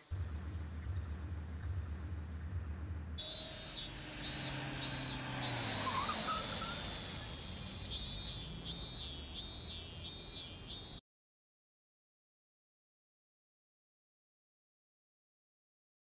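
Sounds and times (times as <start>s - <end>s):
cicadas buzzing: 3.2s - 11.0s.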